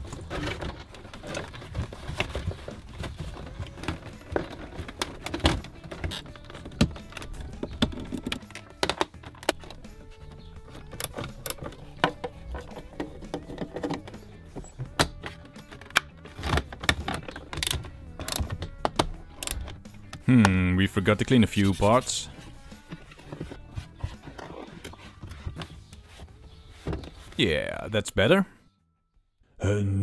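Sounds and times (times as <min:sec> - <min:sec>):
plastic trim clicking and knocking: 0:00.5 - 0:20.6.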